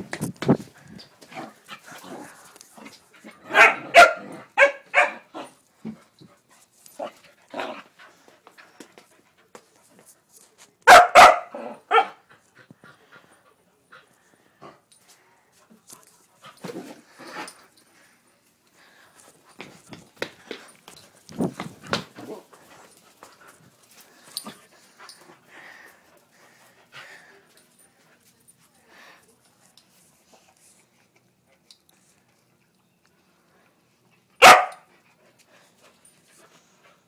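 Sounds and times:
puppy barking: 3.5 - 5.3, 10.9 - 12.2, 34.4 - 34.9.

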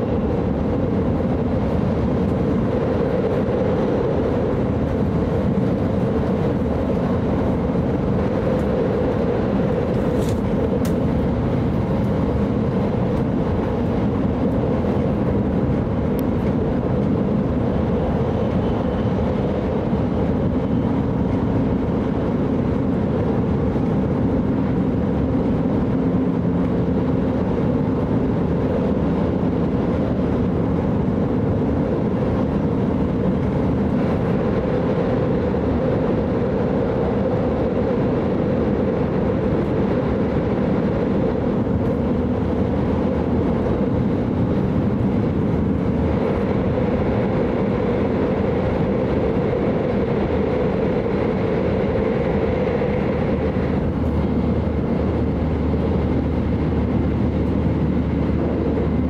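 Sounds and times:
train cabin rumble: 0.0 - 59.0.

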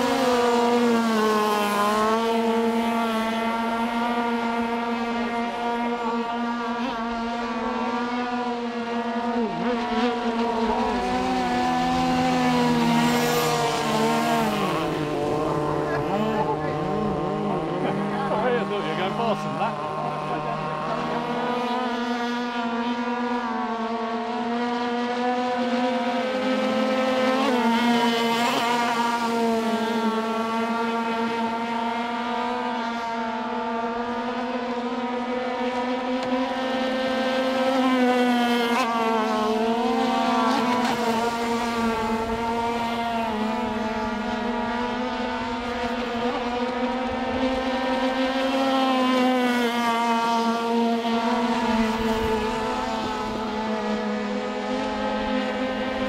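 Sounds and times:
model boat engines buzzing: 0.0 - 56.0.

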